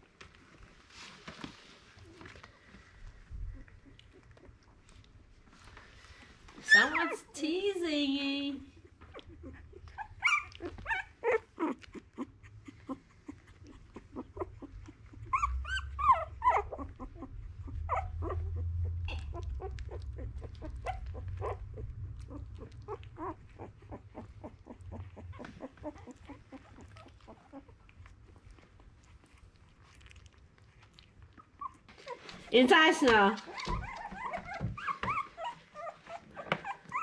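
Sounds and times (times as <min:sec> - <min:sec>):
puppies whimpering: 0:06.6 - 0:07.4, 0:08.8 - 0:29.9, 0:31.2 - 0:37.0.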